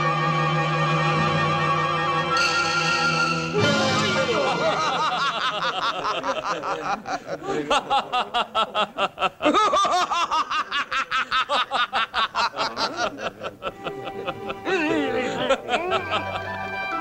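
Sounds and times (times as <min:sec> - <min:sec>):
people laughing together: 0:03.6 - 0:17.0.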